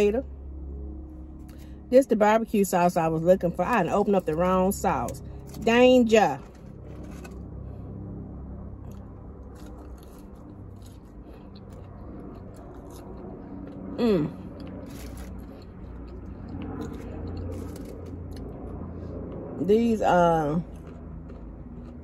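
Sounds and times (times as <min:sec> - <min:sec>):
steady low hum: 0:00.0 - 0:22.0
person chewing and crunching: 0:08.6 - 0:19.5, 0:20.5 - 0:22.0
person humming: 0:14.0 - 0:14.5.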